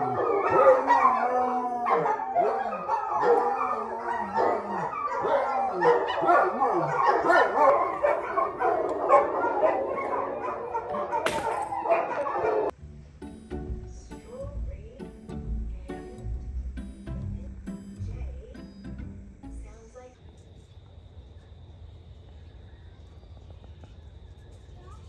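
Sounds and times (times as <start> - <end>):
dogs howling in chorus: 0.0 - 12.7.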